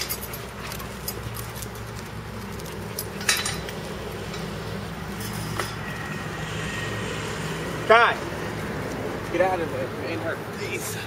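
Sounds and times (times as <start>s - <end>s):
metallic clinks and rattles: 0.0s - 6.1s.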